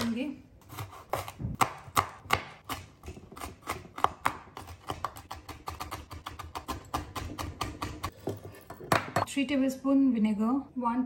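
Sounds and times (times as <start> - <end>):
knife chopping on wooden board: 0.7 - 8.1.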